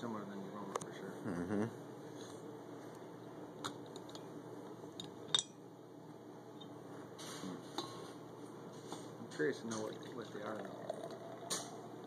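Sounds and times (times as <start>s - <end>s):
glasses clinking: 9.8s - 11.8s.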